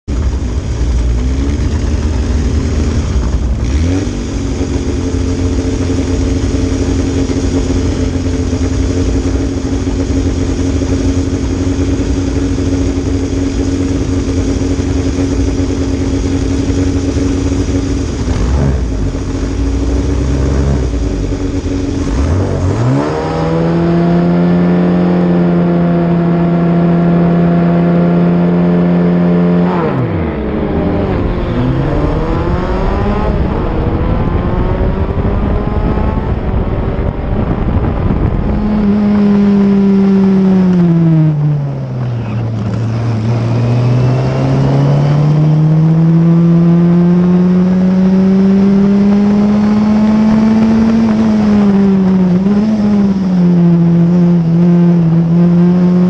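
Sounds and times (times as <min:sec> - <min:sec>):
engine throttle blips: 0:00.0 - 0:56.0
race car engine idling: 0:00.1 - 0:22.7, 0:40.6 - 0:44.0
engine held at high revs: 0:00.1 - 0:56.0.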